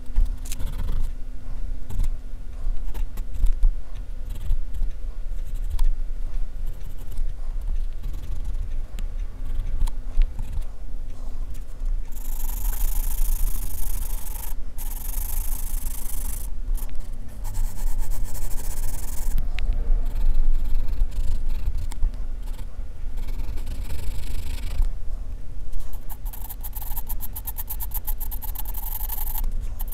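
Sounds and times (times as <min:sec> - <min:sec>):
pencil scratching on paper: 0:11.6 - 0:19.4, 0:25.7 - 0:29.9
low rumble: 0:16.4 - 0:25.9.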